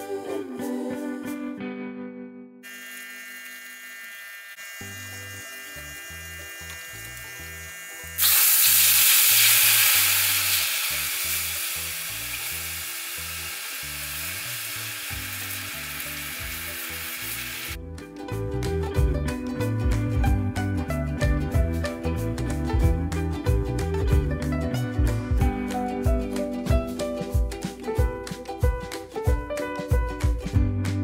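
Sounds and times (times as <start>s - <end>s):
syrup sizzling and bubbling: 8.1s - 17.8s.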